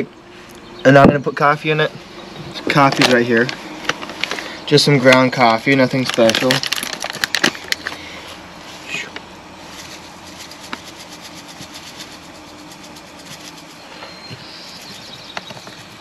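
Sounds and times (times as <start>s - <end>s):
coffee grounds pattering into filter: 5.1s - 8.0s, 9.7s - 16.0s
plastic bag crinkling: 5.3s - 8.0s, 9.6s - 16.0s.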